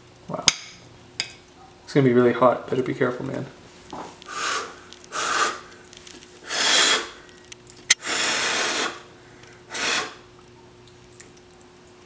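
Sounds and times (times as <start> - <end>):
short puffs of breath: 9.7 - 10.2.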